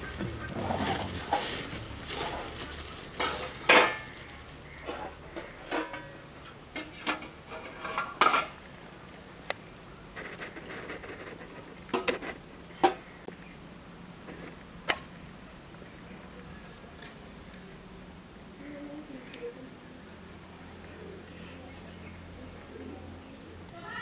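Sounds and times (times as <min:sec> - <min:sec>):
soft rustle of handling: 0:00.0 - 0:06.5, 0:07.5 - 0:12.4.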